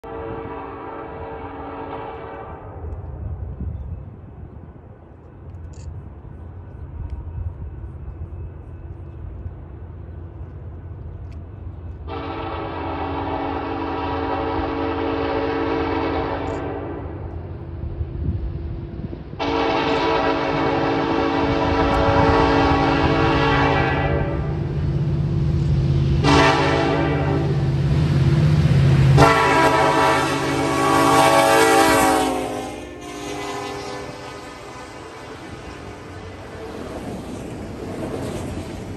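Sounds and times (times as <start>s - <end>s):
distant diesel locomotive rumble: 0.0s - 38.9s.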